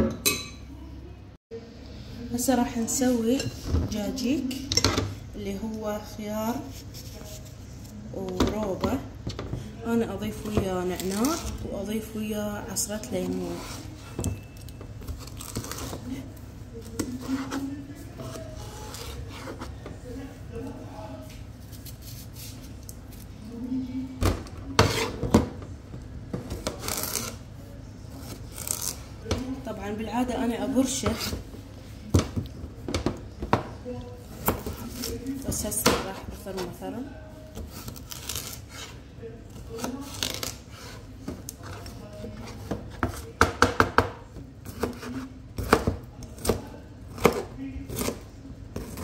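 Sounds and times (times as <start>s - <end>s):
knife chopping on cutting board: 24.8s - 25.5s.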